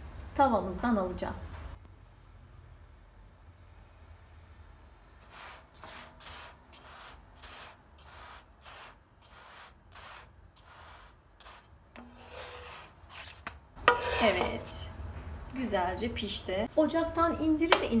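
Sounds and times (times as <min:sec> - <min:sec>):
wooden spatula scraping a pan: 0:05.2 - 0:14.9.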